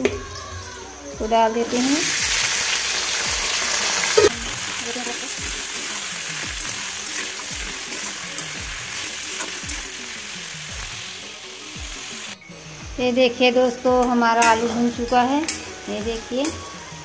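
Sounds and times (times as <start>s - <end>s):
potatoes sizzling in oil: 0.0s - 17.0s
metal spatula stirring: 2.0s - 12.4s.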